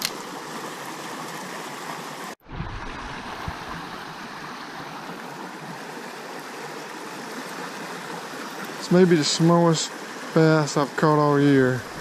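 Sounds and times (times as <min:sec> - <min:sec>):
creek running over stones: 0:00.0 - 0:12.0.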